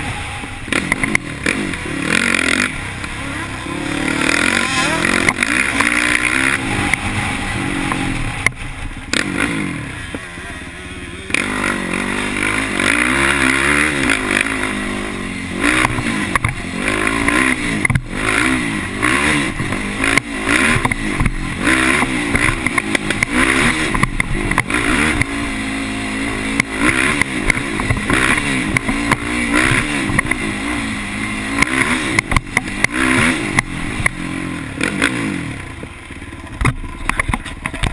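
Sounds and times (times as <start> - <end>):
atv engine revving: 0.0 - 37.9
knocks and rattles over bumps: 26.5 - 30.5, 34.8 - 37.9.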